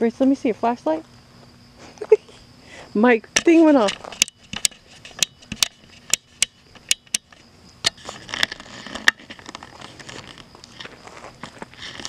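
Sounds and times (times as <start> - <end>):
sharp clicks and crunches: 3.4 - 12.0
faint crackling shuffle: 8.0 - 12.0.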